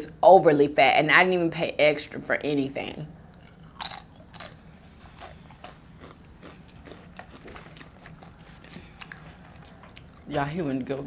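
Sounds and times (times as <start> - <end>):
tortilla chip crunching: 3.3 - 10.6.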